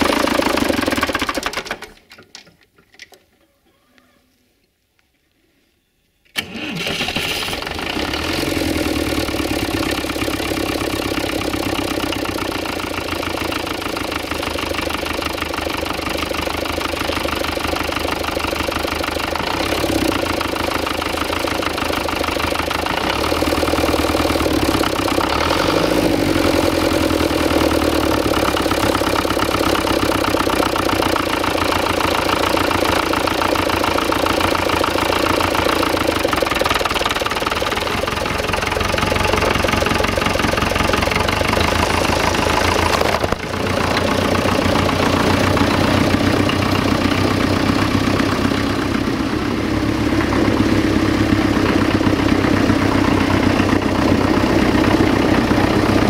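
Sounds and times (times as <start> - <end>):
tractor diesel engine idling: 0.0 - 2.0, 6.4 - 56.0.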